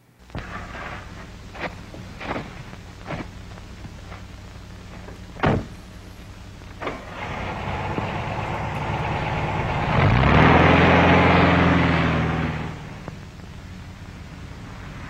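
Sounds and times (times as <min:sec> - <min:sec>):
door slam: 0:05.4 - 0:05.8
knocks and thuds: 0:05.4 - 0:05.8
car engine starting and running: 0:06.8 - 0:15.0.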